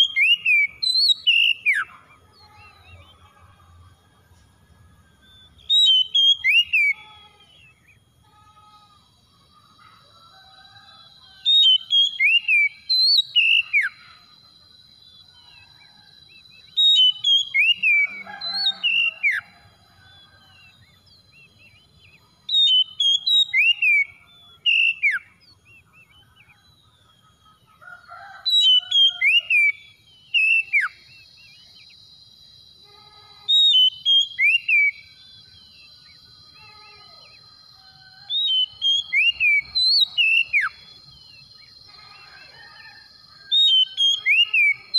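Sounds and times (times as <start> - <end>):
bird singing whistled phrases: 0.0 - 3.2, 5.2 - 8.0, 11.4 - 14.1, 16.5 - 19.5, 21.1 - 25.4, 28.5 - 31.9, 33.4 - 37.4, 38.3 - 42.2.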